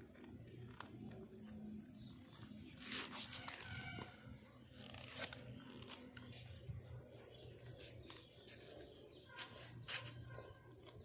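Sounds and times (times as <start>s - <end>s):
cat gnawing bone: 0.0s - 1.9s.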